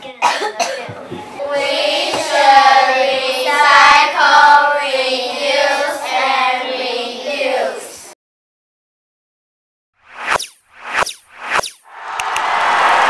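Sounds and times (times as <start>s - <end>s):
children singing: 1.0s - 8.2s.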